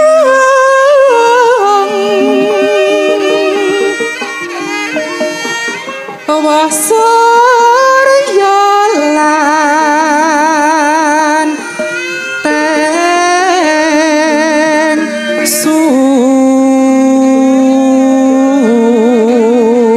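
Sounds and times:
man singing in high voice: 0:00.0 - 0:04.6, 0:06.2 - 0:19.9
gamelan accompaniment: 0:01.0 - 0:17.8.

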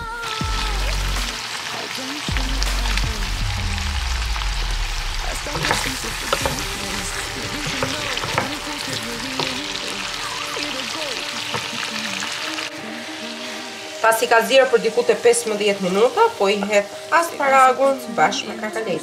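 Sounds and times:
food sizzling in butter: 0:00.2 - 0:19.0
wooden spoon knocking pan: 0:05.5 - 0:09.8.

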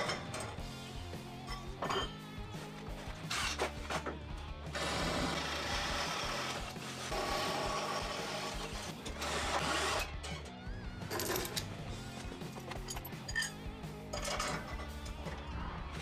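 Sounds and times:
background music: 0:00.0 - 0:16.0
cordless drill boring through metal: 0:04.7 - 0:10.1.

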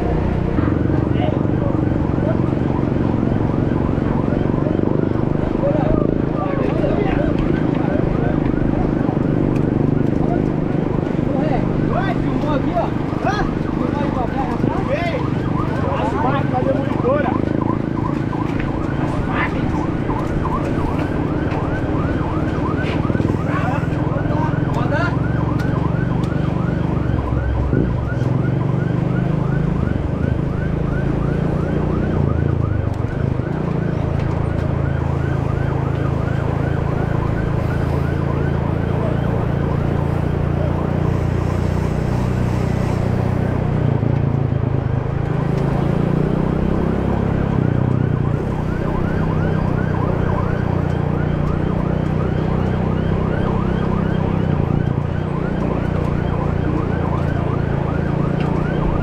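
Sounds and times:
motorcycle engine revving: 0:14.6 - 0:58.8.

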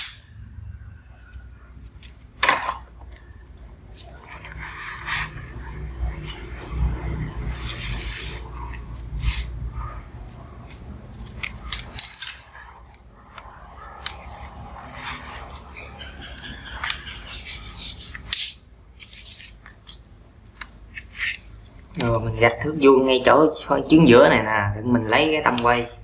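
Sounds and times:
pencil scratching on paper: 0:04.0 - 0:10.5, 0:13.8 - 0:19.6.

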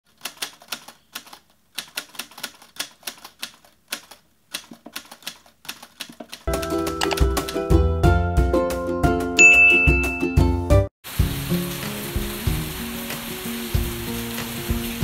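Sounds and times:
typewriter keystrokes: 0:00.1 - 0:07.6
music with bell-like tones: 0:09.4 - 0:10.6.

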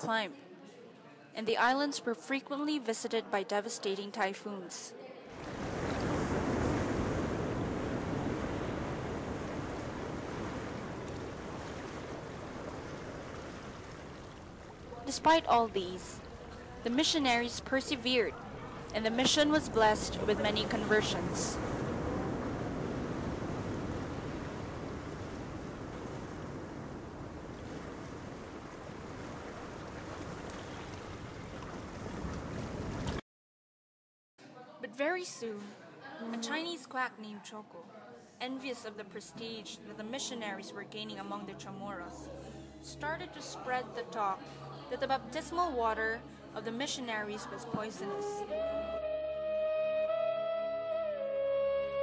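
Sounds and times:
wind: 0:05.3 - 0:33.2
surf on pebbly shore: 0:05.4 - 0:14.6
waves washing onto pebbles: 0:05.4 - 0:14.9, 0:21.6 - 0:33.2.

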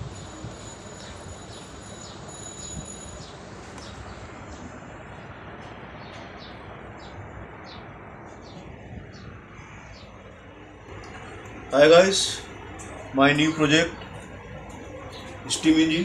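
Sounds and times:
small birds chirping: 0:03.1 - 0:16.0.

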